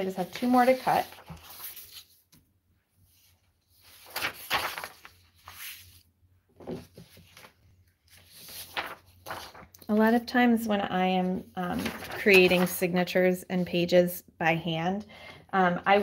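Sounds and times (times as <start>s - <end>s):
paper rustling and sliding: 0.0s - 2.4s, 3.0s - 9.8s, 11.7s - 12.9s.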